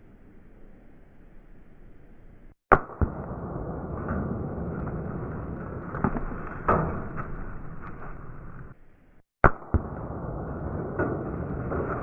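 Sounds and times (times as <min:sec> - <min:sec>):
sharp crack: 0:02.7 - 0:08.8, 0:09.4 - 0:12.0.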